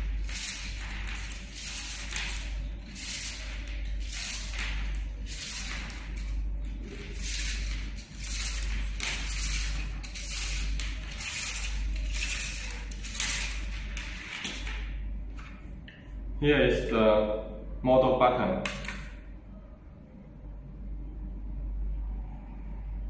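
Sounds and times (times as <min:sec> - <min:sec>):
led strip rustling off reel: 0:00.0 - 0:14.9
steady low hum: 0:00.0 - 0:23.0.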